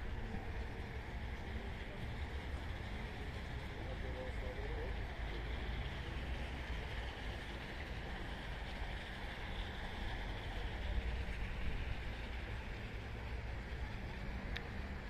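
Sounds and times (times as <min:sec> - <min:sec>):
faint click: 0:14.5 - 0:14.7.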